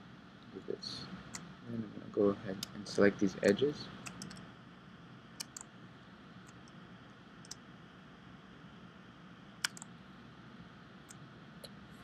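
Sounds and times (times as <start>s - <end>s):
faint steady hiss: 0.0s - 12.0s
computer mouse clicks: 4.0s - 4.5s, 5.4s - 5.7s, 6.4s - 6.8s, 7.4s - 7.6s, 9.6s - 9.9s, 11.0s - 11.8s.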